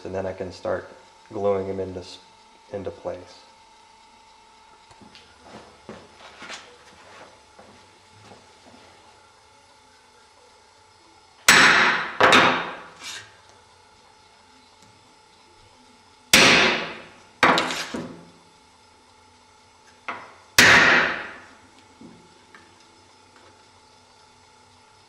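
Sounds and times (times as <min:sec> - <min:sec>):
hammer striking wood chisel: 0:11.5 - 0:12.9, 0:16.4 - 0:18.1, 0:20.1 - 0:21.4.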